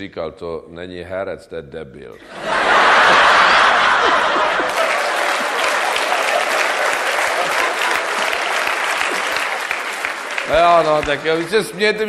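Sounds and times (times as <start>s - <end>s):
audience laughter: 2.2s - 9.7s
audience applauding: 2.6s - 12.0s.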